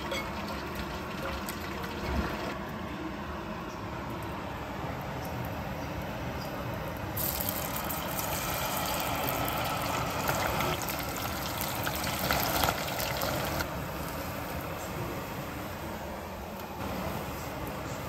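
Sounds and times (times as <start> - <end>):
batter sizzling in hot oil: 0.0 - 2.6, 7.1 - 14.5.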